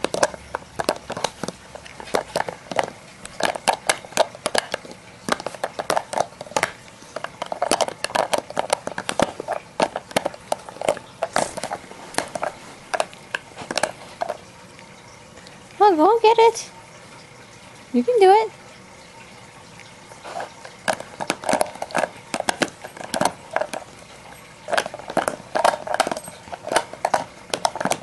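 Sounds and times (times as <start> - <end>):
dog chewing plastic toy clicks: 0.0 - 14.5, 20.4 - 28.0.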